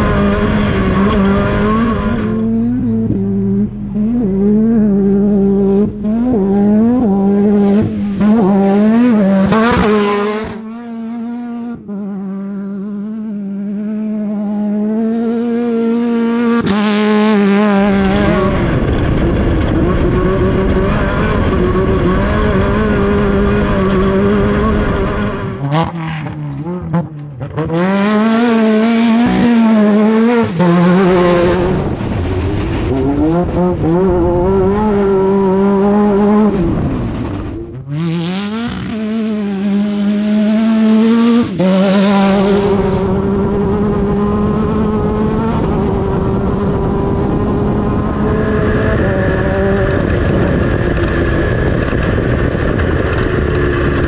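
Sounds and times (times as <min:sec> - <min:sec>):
buggy engine revving: 0:00.0 - 0:54.0.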